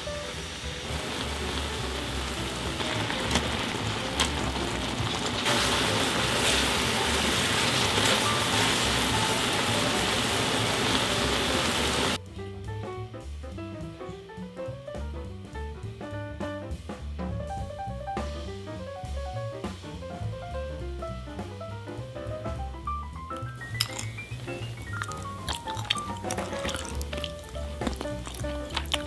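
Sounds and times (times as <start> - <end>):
sauce sizzling and bubbling: 0.0 - 12.2, 23.3 - 29.0
background music: 0.0 - 29.0.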